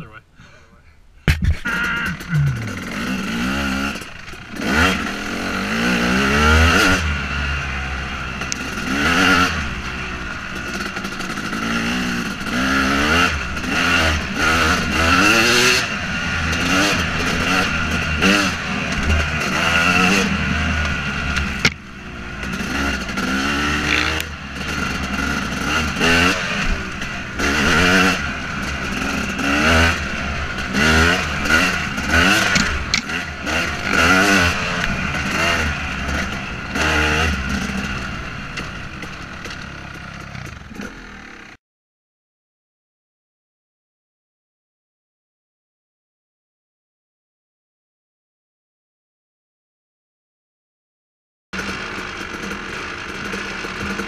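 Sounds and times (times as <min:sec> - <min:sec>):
two-stroke motocross engine revving: 0:01.4 - 0:41.6, 0:51.6 - 0:54.0.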